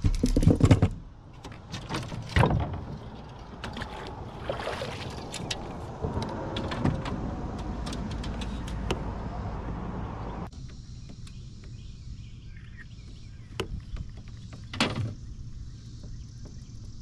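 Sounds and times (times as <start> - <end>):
paddle strokes splashing water: 2.9 - 6.5.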